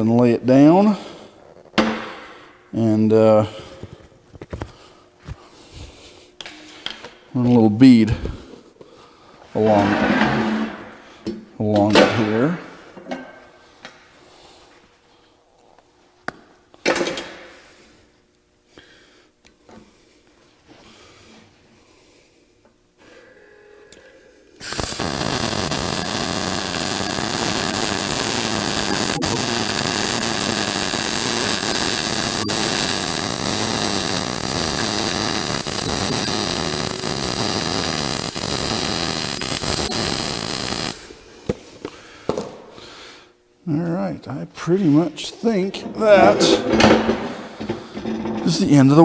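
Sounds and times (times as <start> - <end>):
welder arc buzzing: 24.6 - 41.1.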